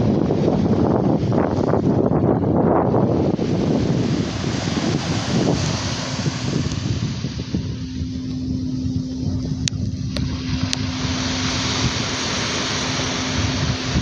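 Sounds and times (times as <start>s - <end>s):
wind rumble on microphone: 0.0s - 14.0s
singing bowl tone: 2.8s - 14.0s.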